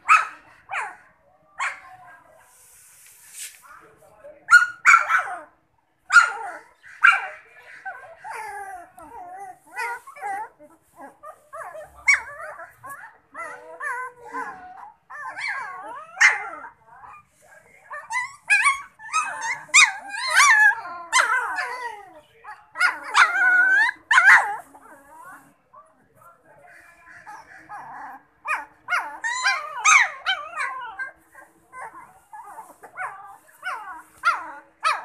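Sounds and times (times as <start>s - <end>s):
puppies yapping and whining: 6.1s - 17.3s, 17.9s - 25.5s, 27.1s - 35.0s.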